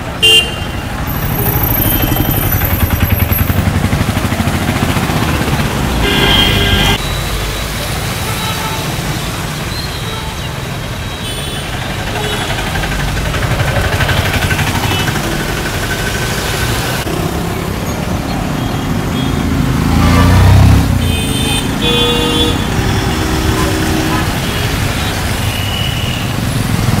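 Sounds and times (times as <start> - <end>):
road traffic passing: 0.0 - 27.0
vehicle horn: 0.2 - 0.8, 5.9 - 7.0, 11.2 - 12.7, 20.9 - 26.3.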